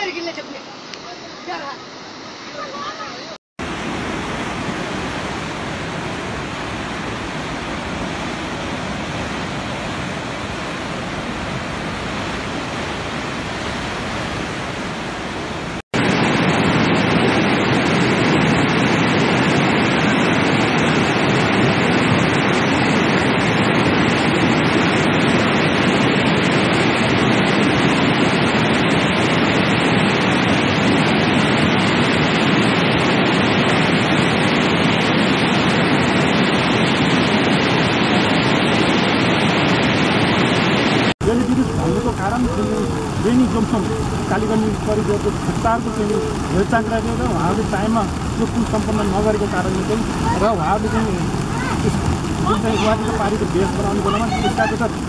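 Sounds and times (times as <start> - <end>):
river rushing: 0.0 - 55.0.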